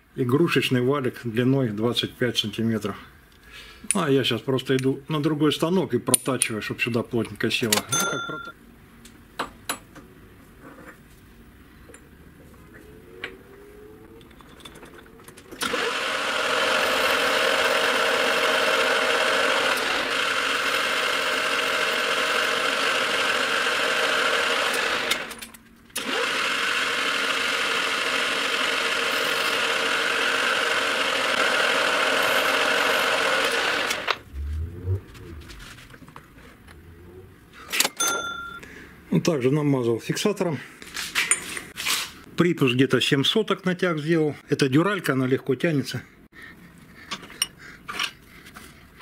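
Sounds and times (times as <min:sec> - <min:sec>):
metal lathe whirring: 0:15.6 - 0:25.4.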